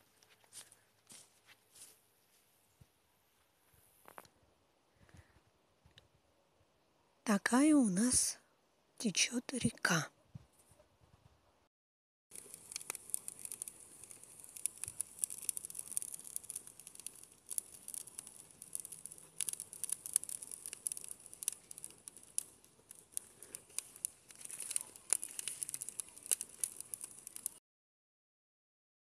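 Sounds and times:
wood fire crackling and popping: 12.3s - 27.6s.

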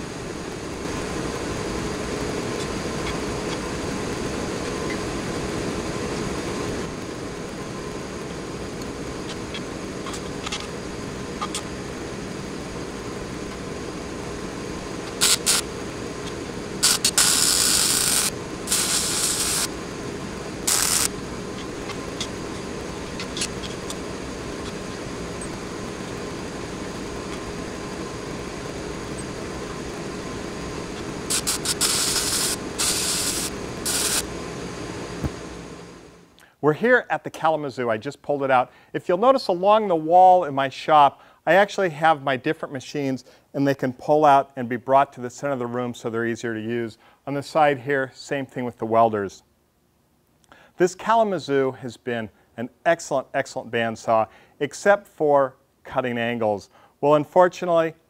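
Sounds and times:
welding arc hissing: 0.0s - 36.1s
shop hum: 0.0s - 37.5s.

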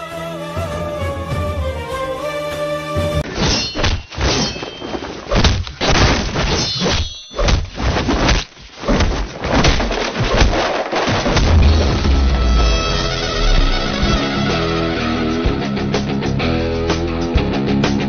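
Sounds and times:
soundtrack music: 0.0s - 3.3s, 11.7s - 17.1s
string music: 0.0s - 3.4s, 11.7s - 17.4s
fight blows and thuds: 3.2s - 12.5s.

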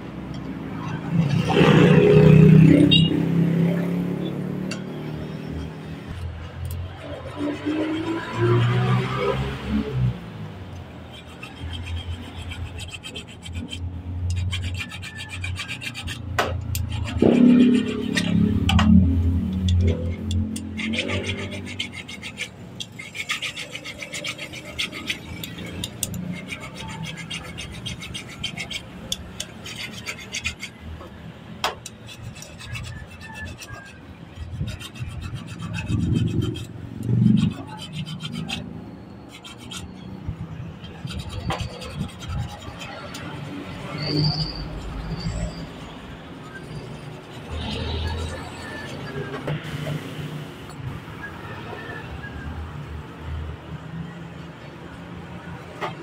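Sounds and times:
hand tool scraping metal: 4.7s - 9.5s, 10.8s - 50.1s
sharp metal clicks: 25.0s - 26.4s.

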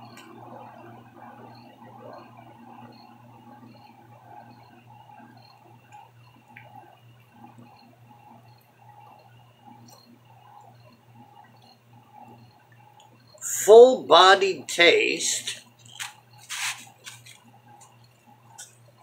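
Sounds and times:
low steady hum: 0.0s - 19.0s
faint ticks: 5.4s - 13.4s.

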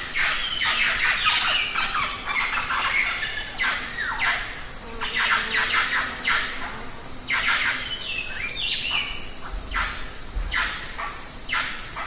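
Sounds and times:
birds calling harshly: 0.0s - 6.6s.

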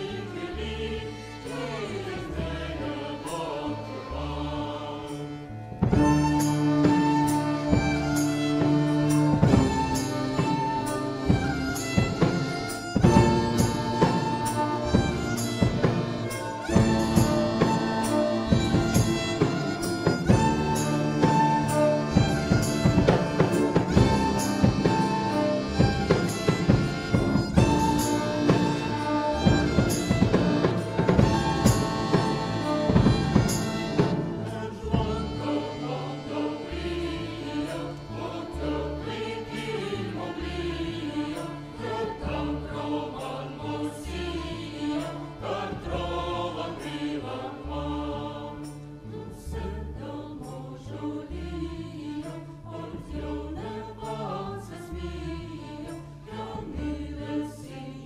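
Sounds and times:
mixed choir singing: 0.0s - 58.0s
band playing: 5.8s - 43.4s.

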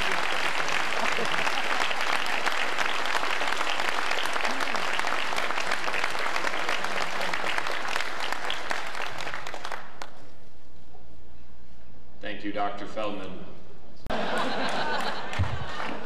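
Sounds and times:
audience applauding: 0.0s - 10.2s, 14.2s - 16.0s.

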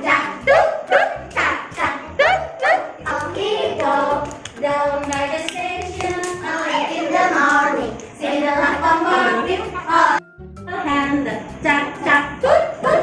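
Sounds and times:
hand clapping: 3.7s - 6.7s.

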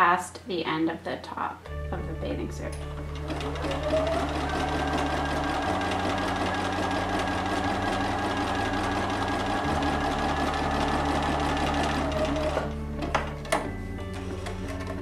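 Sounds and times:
sewing machine running: 3.0s - 12.8s.

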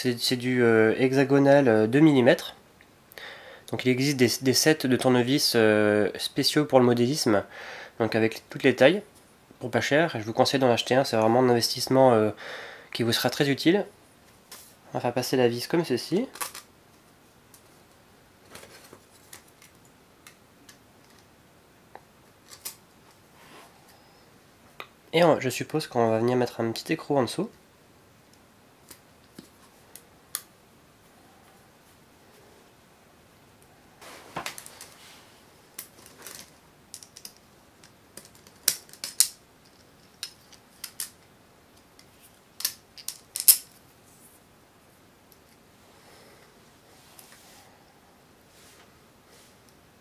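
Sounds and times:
small clicks and rattles of parts: 16.3s - 16.7s, 18.4s - 21.3s, 22.3s - 23.2s, 34.4s - 35.0s, 35.7s - 43.8s.

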